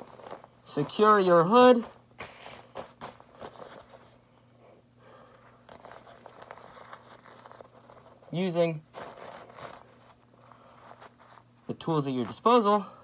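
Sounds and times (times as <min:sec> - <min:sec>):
cloth hood rustling: 0:05.6 - 0:11.6.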